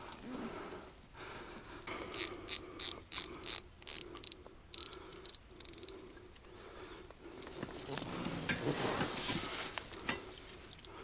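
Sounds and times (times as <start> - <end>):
ratcheting mechanical clicks: 1.8 - 6.0.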